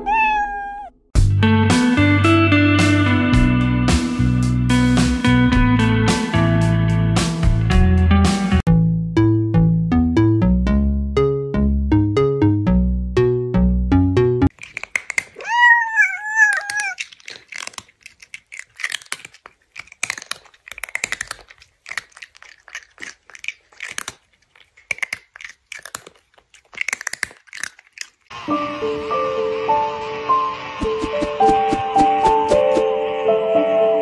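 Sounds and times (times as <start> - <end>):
cartoon crunching and munching: 14.5 - 28.4.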